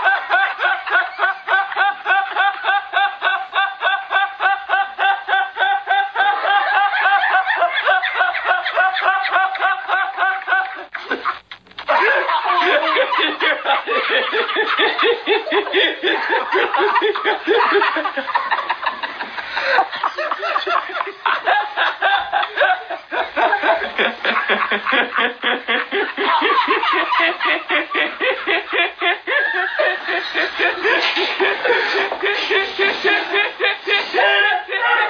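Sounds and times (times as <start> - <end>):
person giggling: 0.0 - 35.0.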